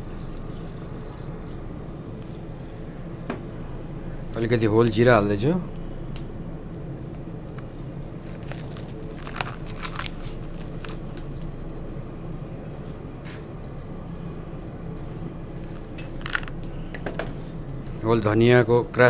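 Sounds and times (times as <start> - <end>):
steady low hum: 0.0 - 19.0
spice seeds crackling: 7.6 - 11.5, 16.1 - 16.8.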